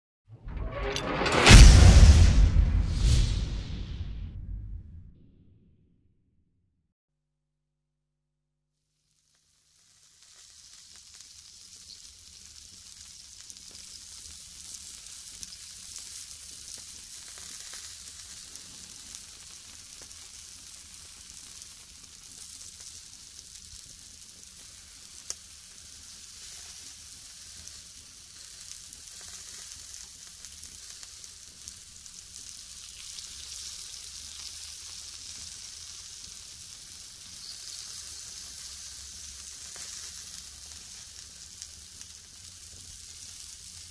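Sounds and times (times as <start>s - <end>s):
meat sizzling on a grill: 8.9s - 43.9s.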